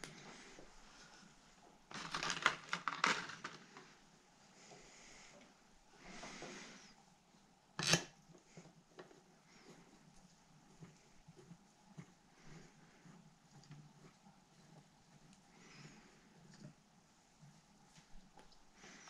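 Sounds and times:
soft rustle: 0.0 - 7.5, 8.3 - 19.0
plastic packaging crackling: 1.9 - 3.9.

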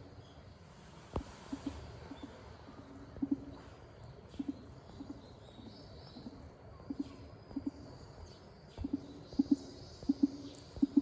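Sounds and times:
bird cooing: 6.2 - 7.8, 8.8 - 11.0.

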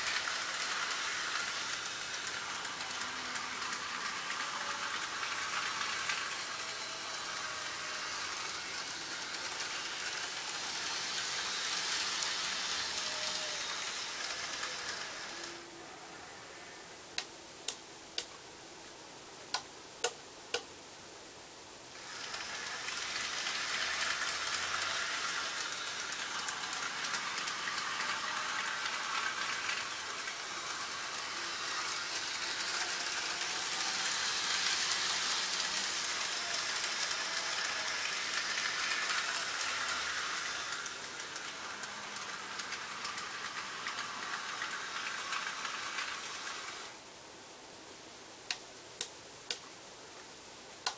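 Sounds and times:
model train whirring on track: 0.0 - 16.9, 21.9 - 47.1
sharp switching clicks: 48.5 - 49.6.

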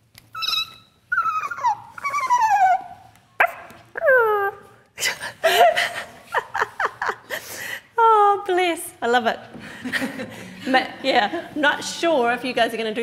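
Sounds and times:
puppy whimpering: 0.3 - 4.7.

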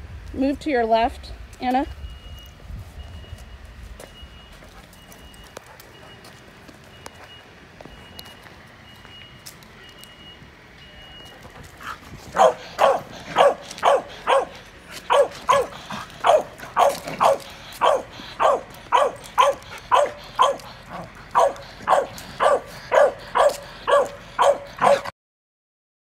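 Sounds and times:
dog barking: 12.4 - 25.1.

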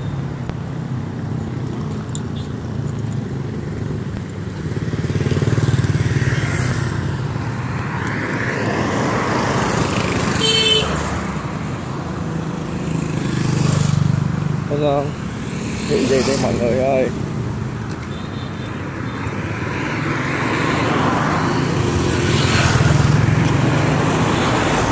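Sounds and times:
motorbikes passing: 0.0 - 24.9
horn toot: 10.4 - 11.1.

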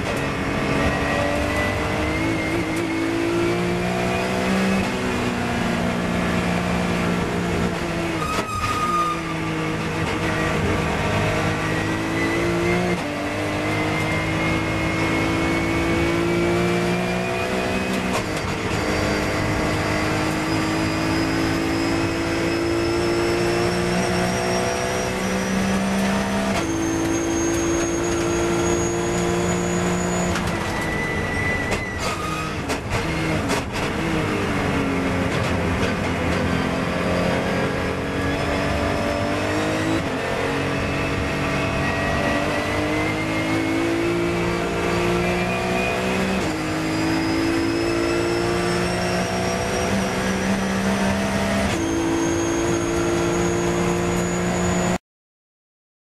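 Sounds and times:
racing car engine from cockpit: 0.0 - 55.0.

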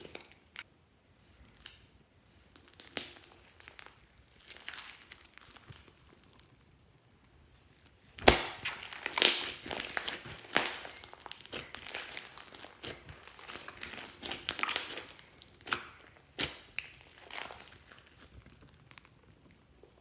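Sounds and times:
slime squishing: 2.5 - 6.8, 7.5 - 20.0
water beads crackling and popping: 2.6 - 6.6, 8.2 - 19.6.

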